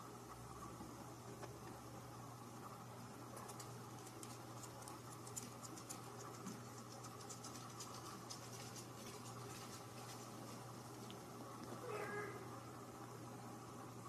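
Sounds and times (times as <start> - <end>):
steady low hum: 0.0 - 14.0
kitten claws scratching fabric: 3.4 - 10.7.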